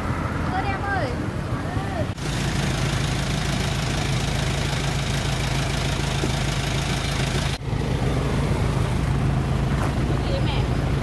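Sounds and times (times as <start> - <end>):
small engine humming: 2.2 - 8.6.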